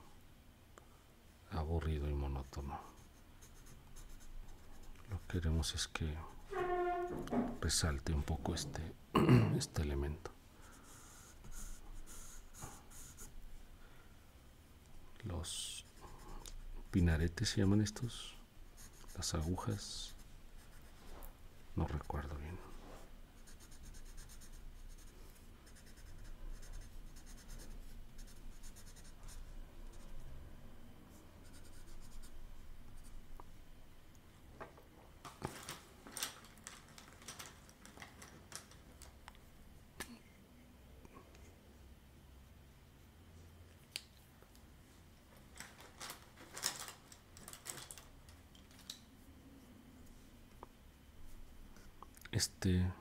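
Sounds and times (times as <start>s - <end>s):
pencil scratching on paper: 2.4s - 5.4s, 10.8s - 13.3s, 18.8s - 21.0s, 23.4s - 30.2s, 31.4s - 32.3s
pencils clicking and clattering: 35.7s - 39.1s.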